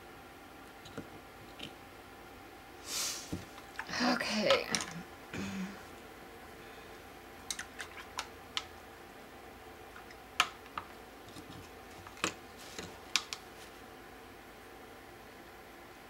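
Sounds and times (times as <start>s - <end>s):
painting supplies clicking: 10.0s - 13.5s.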